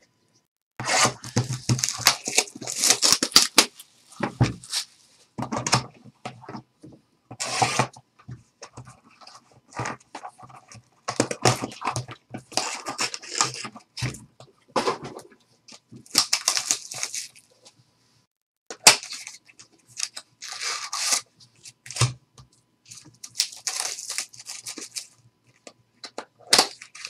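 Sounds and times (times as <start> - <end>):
plastic wrap tearing and crinkling: 0.8 - 3.9, 4.5 - 5.0, 11.4 - 13.7, 16.0 - 17.5, 18.8 - 22.1, 22.9 - 25.2, 26.4 - 27.0.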